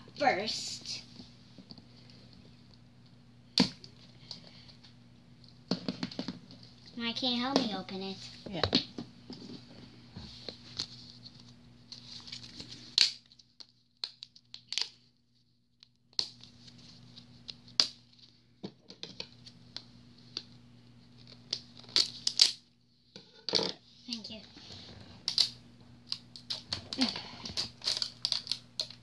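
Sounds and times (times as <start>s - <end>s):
plastic packaging crinkling: 25.2s - 29.0s.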